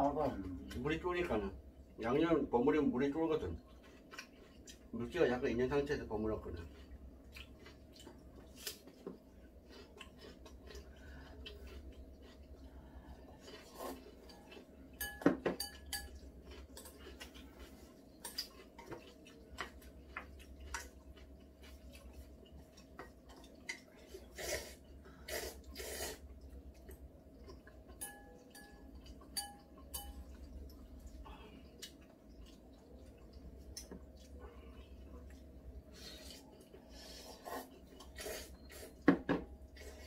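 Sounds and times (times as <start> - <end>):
chopsticks and spoons clinking on bowls: 13.4 - 20.9, 26.8 - 30.6.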